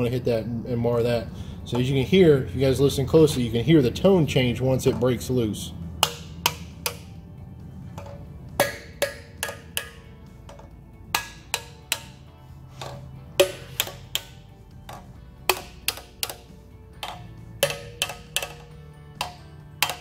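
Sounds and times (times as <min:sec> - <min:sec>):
hammer tapping metal: 0:06.0 - 0:07.2, 0:07.9 - 0:20.0.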